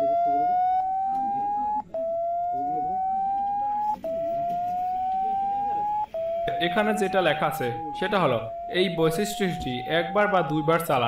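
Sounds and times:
rising phone speaker tone: 0.0s - 11.0s.

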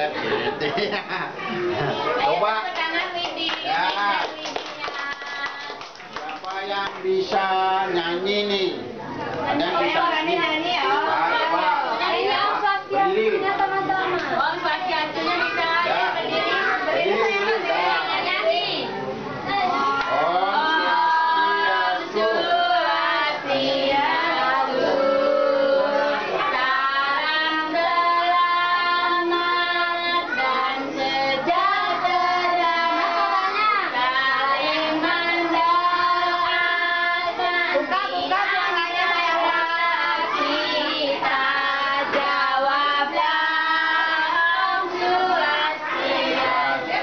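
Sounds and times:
young children singing: 9.6s - 47.0s.

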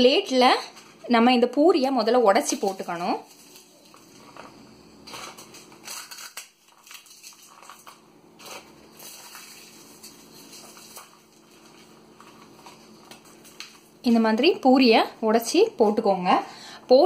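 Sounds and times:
fried snacks crunching by hand: 2.5s - 14.0s.

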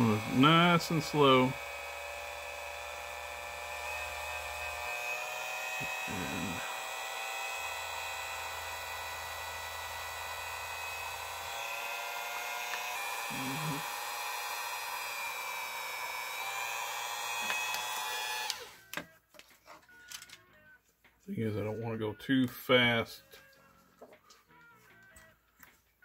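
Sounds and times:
rotary tool whining: 0.0s - 20.4s.

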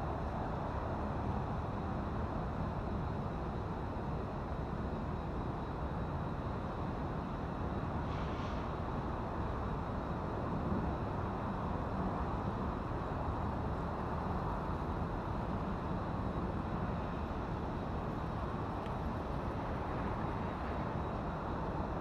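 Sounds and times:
urban background rumble: 0.0s - 22.0s.

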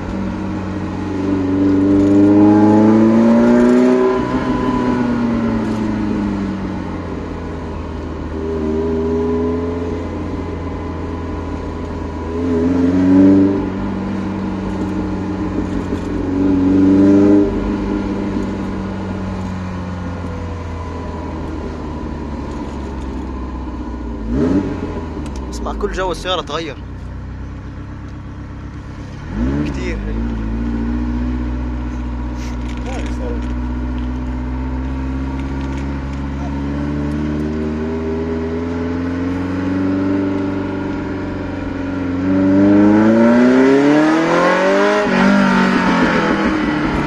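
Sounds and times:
car engine revving: 0.0s - 47.0s.

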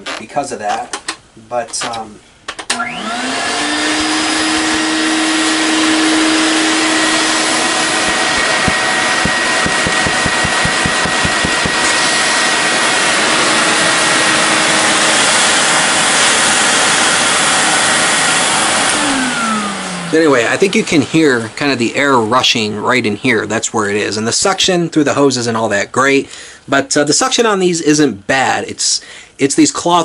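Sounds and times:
vacuum cleaner motor running: 2.7s - 21.5s
air rushing through hose: 3.9s - 19.9s.

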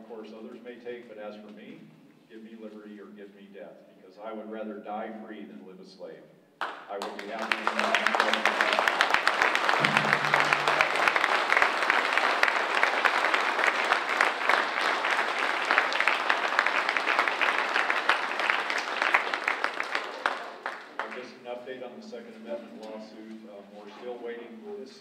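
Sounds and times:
audience clapping: 6.6s - 21.3s.

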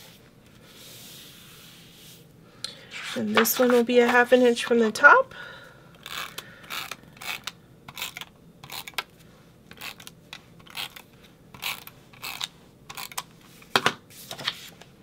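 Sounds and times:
tape runner ratcheting on paper: 6.0s - 9.1s, 9.7s - 13.3s.

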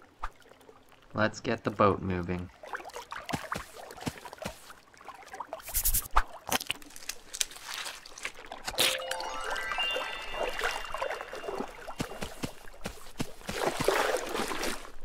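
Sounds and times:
rising musical tones: 8.8s - 12.4s.

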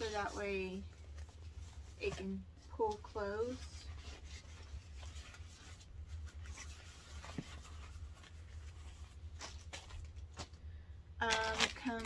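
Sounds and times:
plastic packaging crinkling: 11.2s - 12.0s.

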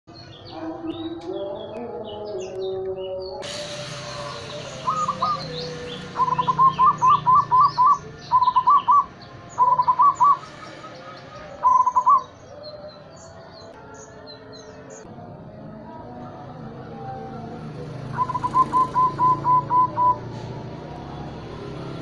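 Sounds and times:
small birds chirping: 0.1s - 3.4s, 4.0s - 15.1s, 17.9s - 20.4s
dove cooing: 4.1s - 10.6s, 11.6s - 12.3s, 18.0s - 20.3s.

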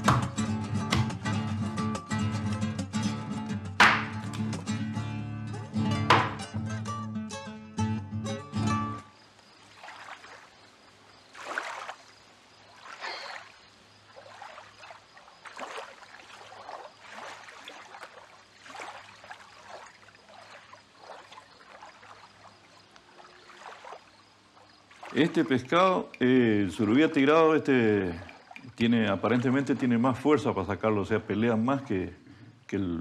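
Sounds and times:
water sloshing and lapping: 9.1s - 32.7s.

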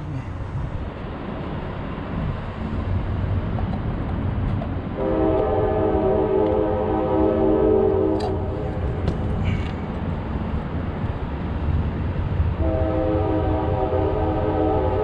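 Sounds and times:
train horn chord: 5.0s - 8.5s, 12.6s - 15.0s.

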